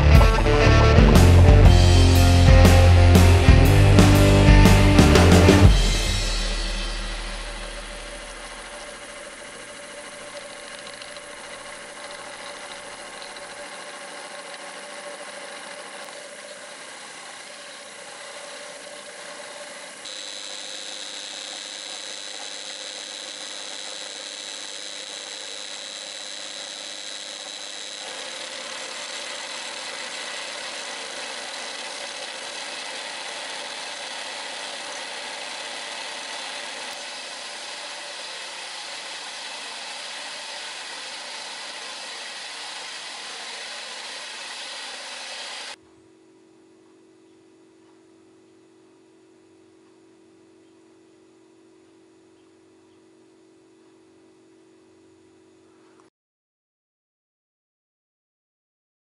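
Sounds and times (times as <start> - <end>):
drill press whining: 0.0 - 45.8
strong high whine: 0.0 - 47.6.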